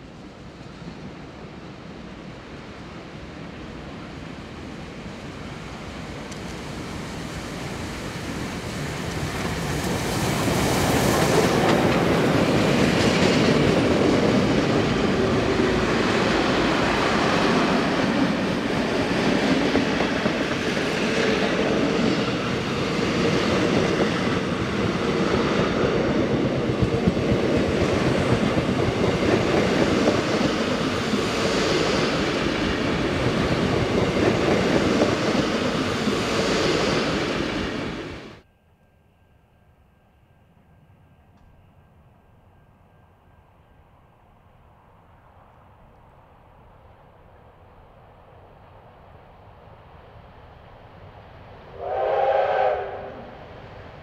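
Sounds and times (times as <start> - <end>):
train wheels on rails: 0.0 - 38.5
passenger train passing: 0.0 - 54.0.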